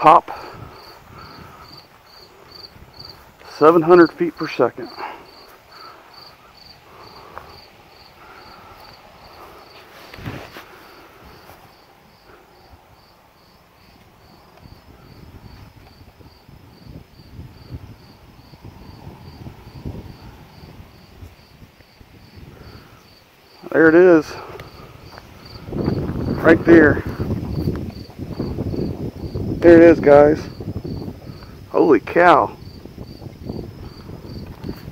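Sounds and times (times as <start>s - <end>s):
insect chirping: 0.0s - 34.9s
soft rustling and scuffing: 9.6s - 11.8s.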